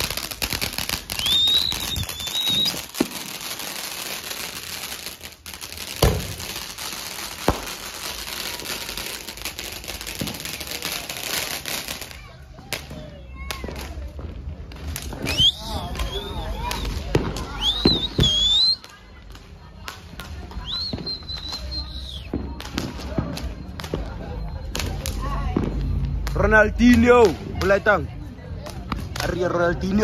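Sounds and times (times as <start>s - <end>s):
firecracker bangs: 0.0s - 18.8s, 20.0s - 27.7s
fireworks hissing and crackling: 0.0s - 30.0s
high whistle: 1.1s - 2.9s, 15.2s - 18.8s, 20.6s - 22.3s.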